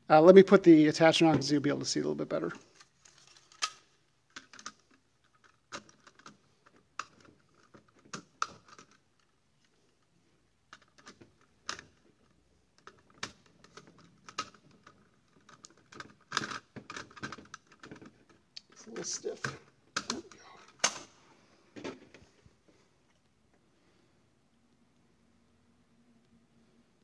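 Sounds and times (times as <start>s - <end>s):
camera parts clicking and knocking: 2.7s - 9.3s.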